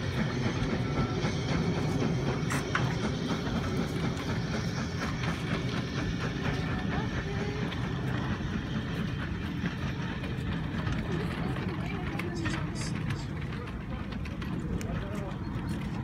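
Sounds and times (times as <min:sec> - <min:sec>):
steam train running: 0:00.0 - 0:16.0
wheels clattering over rails: 0:00.0 - 0:16.0.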